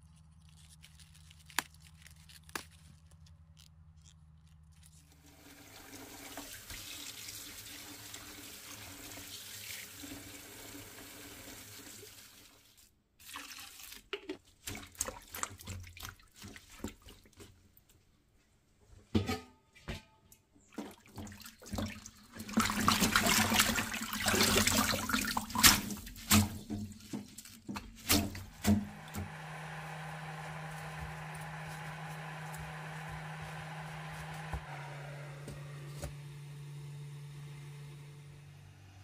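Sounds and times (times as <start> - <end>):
water splashing and sloshing: 12.6 - 17.9, 20.6 - 29.1
low hum: 28.2 - 39.0.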